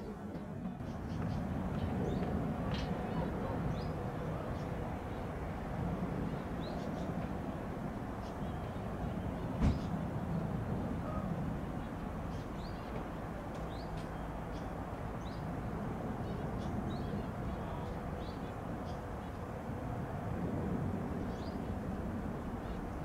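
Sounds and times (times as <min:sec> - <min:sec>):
distant jet engines rumbling: 0:00.0 - 0:23.0
small birds chirping: 0:11.8 - 0:19.5.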